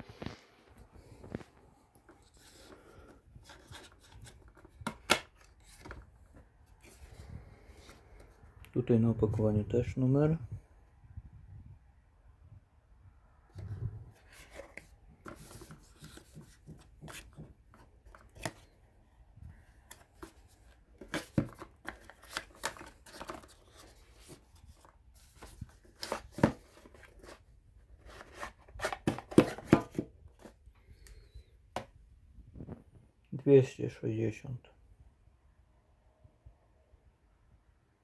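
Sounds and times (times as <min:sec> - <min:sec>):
cardboard box rustling and scraping: 0:13.6 - 0:17.4.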